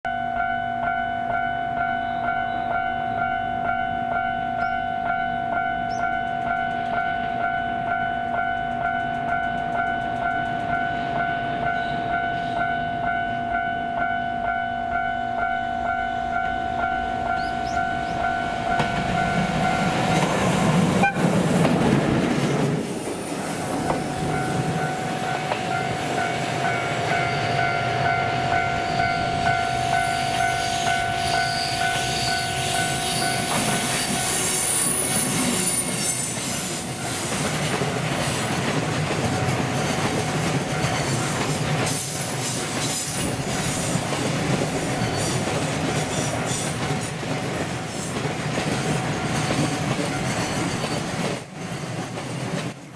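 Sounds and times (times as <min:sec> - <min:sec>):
train wheels rumbling and clacking: 0:05.8 - 0:14.2, 0:15.8 - 0:52.9
locomotive horn: 0:20.8 - 0:21.5.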